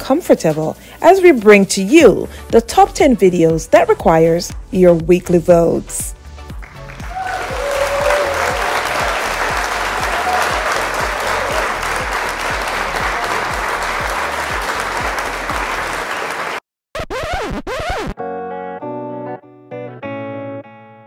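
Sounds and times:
music with bass beat: 2.5 - 16.1
crowd applauding and cheering: 6.5 - 16.6.

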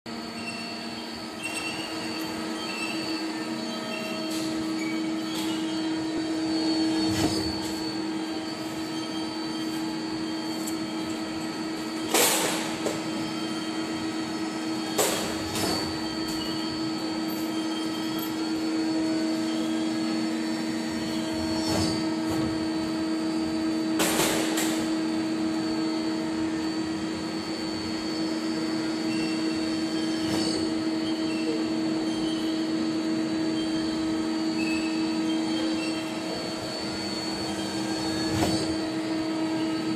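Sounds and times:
lathe machine hum: 25.0 - 39.9.

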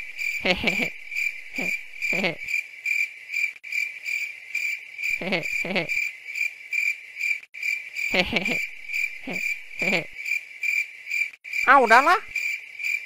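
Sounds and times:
crickets chirping: 0.0 - 13.0
person chuckling: 0.4 - 1.0, 1.6 - 2.5, 5.2 - 6.0, 8.1 - 10.2.

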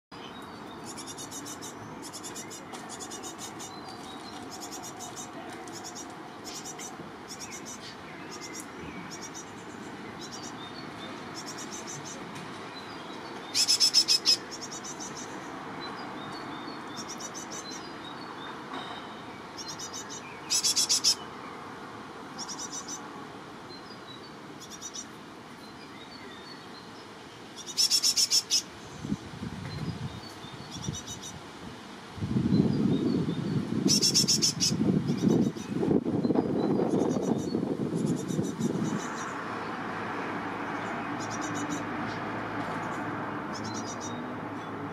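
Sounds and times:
young birds calling: 13.2 - 15.5, 19.5 - 21.3, 27.6 - 28.8, 33.8 - 35.8
bursts of rapid high bird calls: 13.5 - 15.6, 19.5 - 21.3, 27.6 - 28.8, 33.8 - 35.8.

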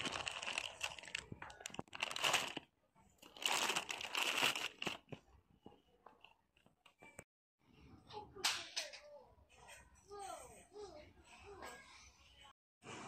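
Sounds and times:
plastic packaging crinkling: 0.0 - 5.2.

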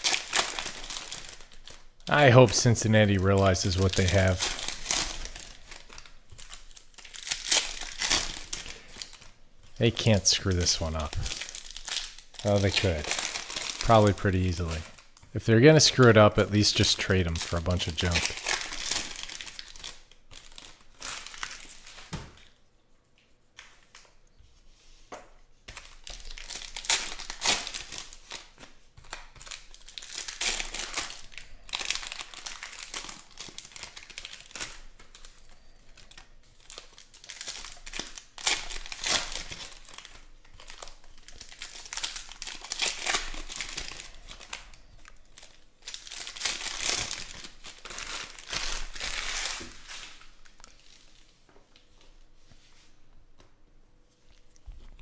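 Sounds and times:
foil wrappers crinkling: 0.0 - 22.6, 25.7 - 52.3.

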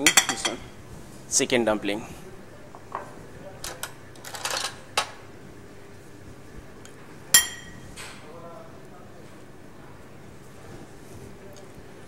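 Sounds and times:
ringing clink: 7.4 - 7.8.

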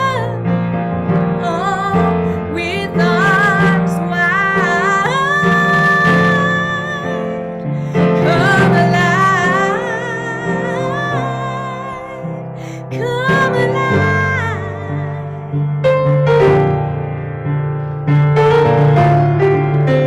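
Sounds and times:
woman singing: 0.0 - 15.7.

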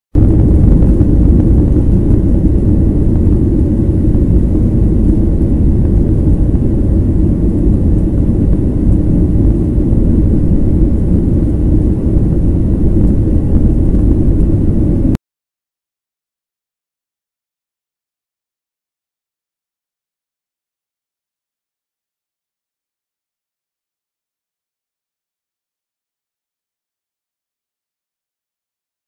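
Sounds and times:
airliner cabin engine rumble: 0.2 - 15.2.

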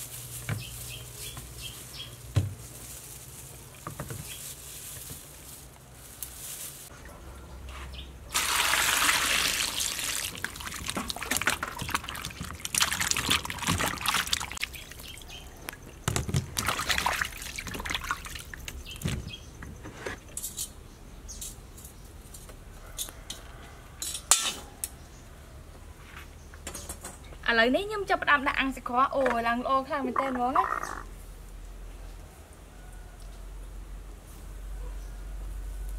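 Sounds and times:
water pouring and splashing: 8.3 - 15.3, 16.0 - 19.1.

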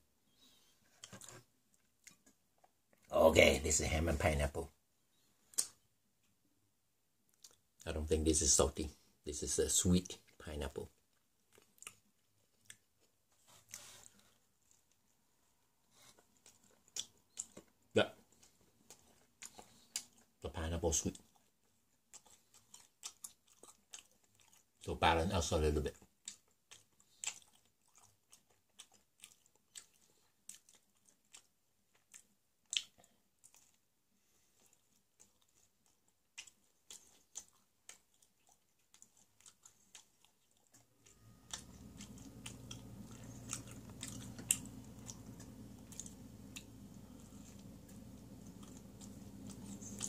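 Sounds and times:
person chewing food: 0.5 - 3.1, 7.3 - 7.8, 10.1 - 50.0
steady low hum: 41.1 - 50.0.

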